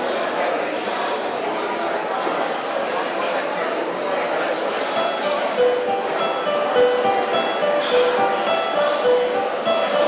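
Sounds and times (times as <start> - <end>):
electronic keyboard melody: 4.8 - 10.0.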